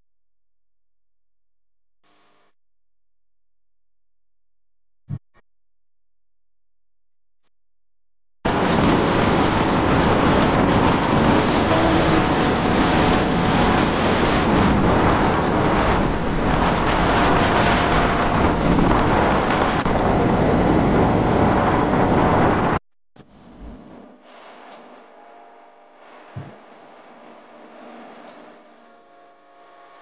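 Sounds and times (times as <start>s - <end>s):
vehicle engine running: 8.5s - 22.8s
wind buffeting microphone: 8.5s - 22.8s.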